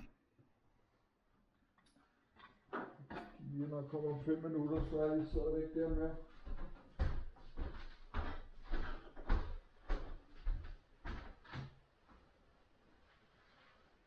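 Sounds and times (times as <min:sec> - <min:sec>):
barefoot footsteps on wooden floor: 0:04.7 - 0:12.3.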